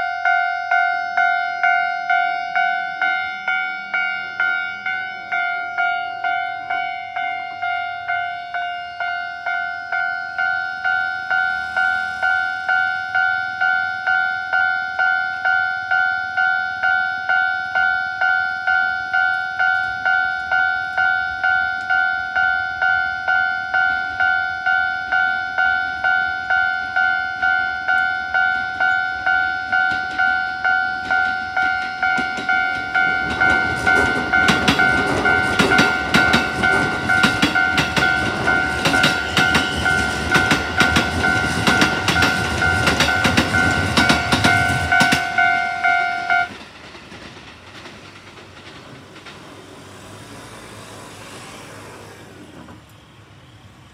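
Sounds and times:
level crossing bell dinging: 12.3 - 46.5
train wheels clacking on rails: 17.8 - 52.9.

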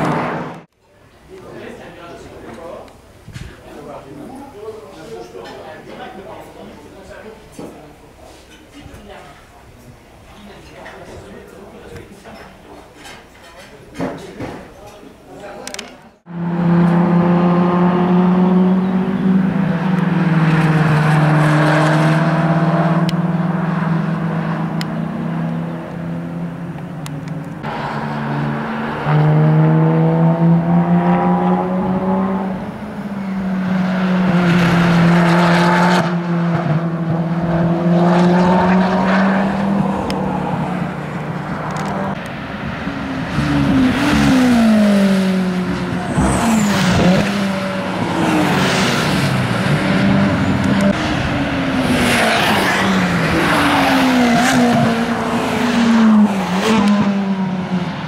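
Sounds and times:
race car engines revving: 0.0 - 0.7, 15.6 - 58.0.

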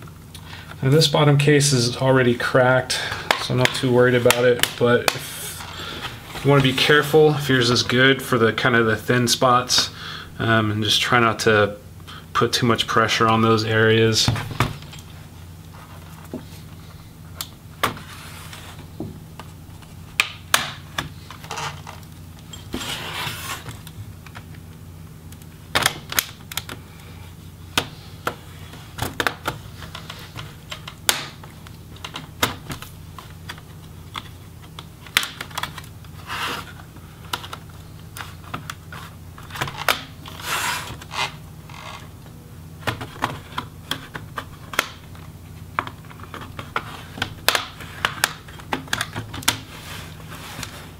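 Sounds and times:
plastic clips snapping: 33.5 - 35.9.

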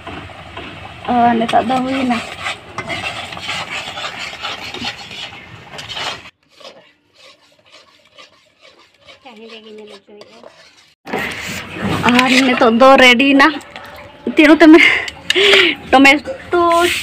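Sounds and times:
metal spatula scraping a pan: 1.4 - 13.0.

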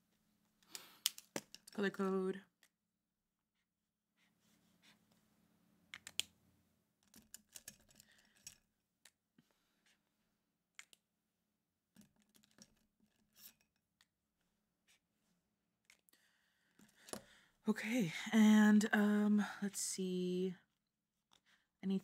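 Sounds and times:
pen clicks: 0.7 - 1.8, 5.9 - 6.3, 10.8 - 11.0.

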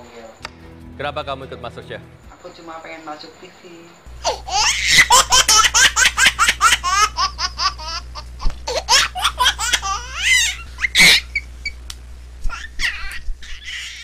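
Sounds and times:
high-pitched laughter: 4.2 - 11.4.

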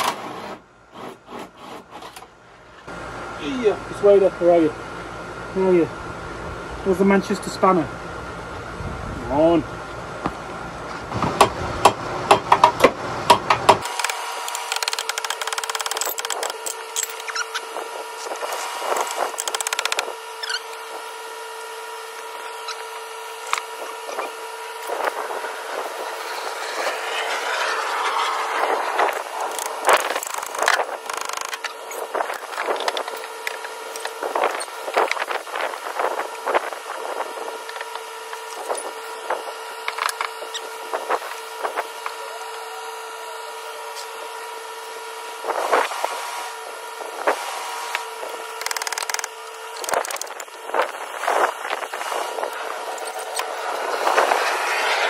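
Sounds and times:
short rasp: 0.0 - 2.2.

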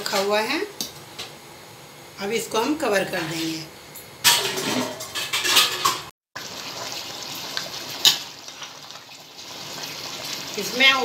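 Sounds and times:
steel lid clattering on pot: 4.2 - 6.1
rice and stock bubbling: 6.3 - 11.0.

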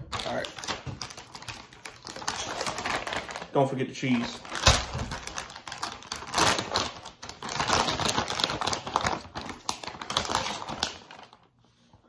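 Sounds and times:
plastic bag crinkling: 0.0 - 11.5.

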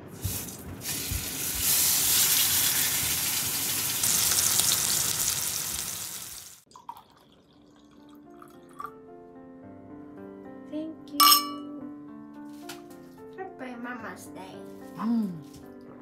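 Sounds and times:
steak sizzling in hot oil: 0.2 - 6.7.

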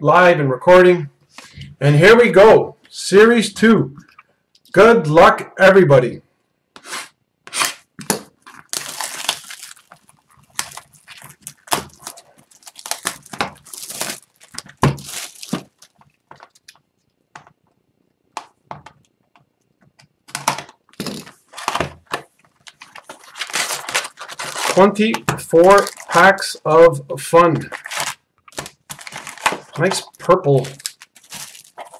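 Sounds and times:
plastic wrap crinkling: 8.1 - 17.2, 20.9 - 26.6, 27.6 - 31.9.

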